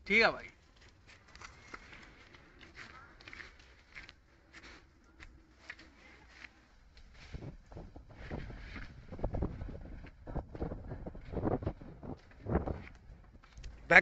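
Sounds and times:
footsteps crunching on dry leaves: 0:00.6 - 0:07.5
soft rustles: 0:00.6 - 0:13.9.

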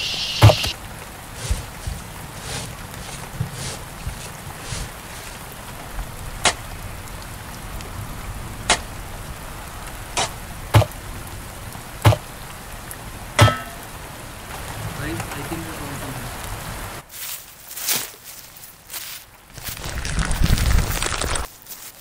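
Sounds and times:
steady hiss: 0:00.0 - 0:17.5
sharp strikes digging soil: 0:00.1 - 0:00.8, 0:01.4 - 0:05.3, 0:08.7 - 0:08.9, 0:10.2 - 0:10.9, 0:12.0 - 0:12.2, 0:13.4 - 0:13.8.

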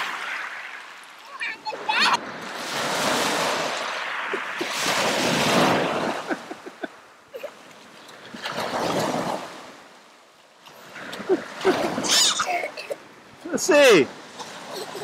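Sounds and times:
waves breaking on shore: 0:00.0 - 0:15.0.

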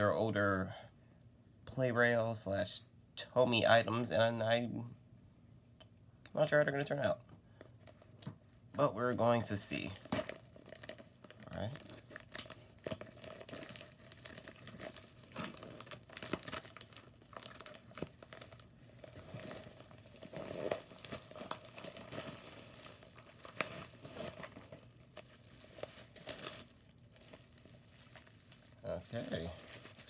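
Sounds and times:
plastic crinkling and rustling: 0:07.6 - 0:30.0.

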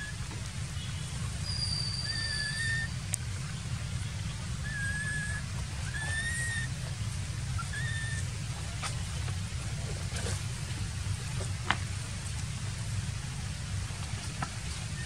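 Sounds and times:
young macaque crying: 0:02.0 - 0:03.0, 0:04.6 - 0:06.9, 0:07.5 - 0:08.3.

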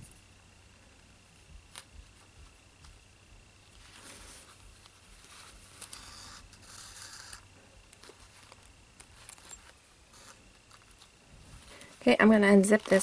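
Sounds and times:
rustling and scraping of fabric: 0:03.7 - 0:07.4, 0:08.0 - 0:13.0.

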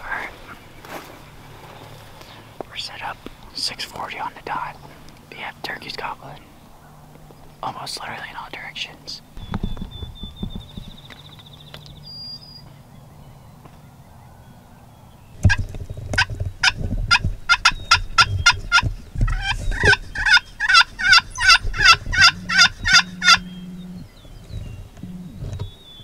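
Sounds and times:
wild turkey yelping: 0:16.2 - 0:24.2.

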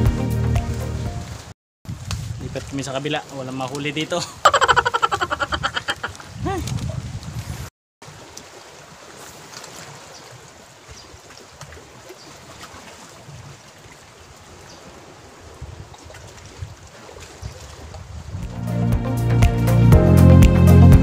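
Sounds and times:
water lapping among rocks: 0:01.9 - 0:18.4.

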